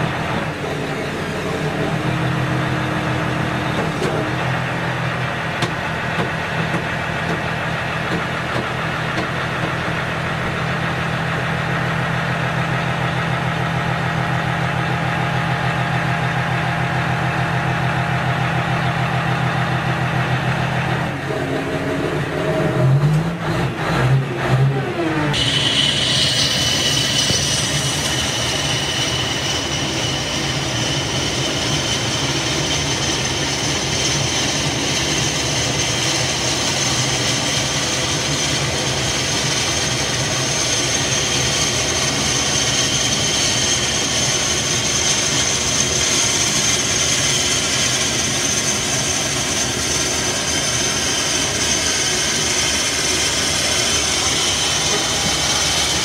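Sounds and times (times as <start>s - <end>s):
aircraft turbine whine: 0.0s - 23.6s, 24.7s - 56.0s.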